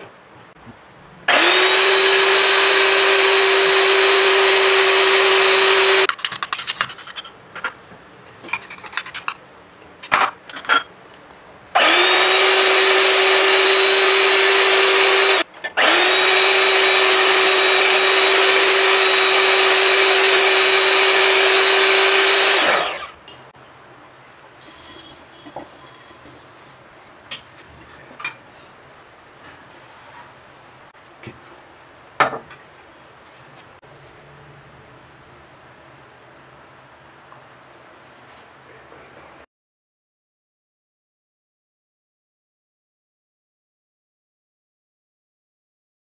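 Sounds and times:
electric hand mixer whipping eggs: 1.3s - 6.1s, 11.8s - 23.2s.

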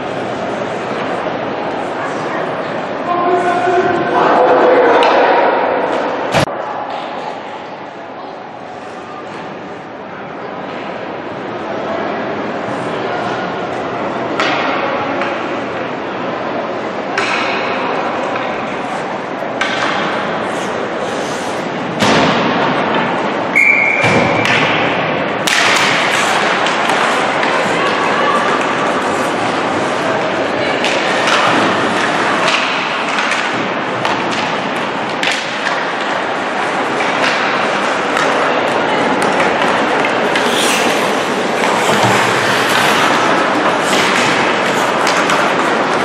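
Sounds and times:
arena noise: 0.0s - 46.0s
hockey sticks and puck clacking: 14.4s - 15.5s, 17.2s - 18.7s, 19.4s - 23.2s, 24.0s - 46.0s
skates on ice: 36.6s - 46.0s.

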